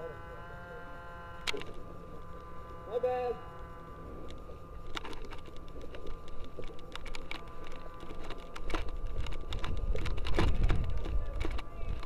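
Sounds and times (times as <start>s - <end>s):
low rumble of movement: 0.2s - 12.0s
gear clicks and scuffs: 3.6s - 12.0s.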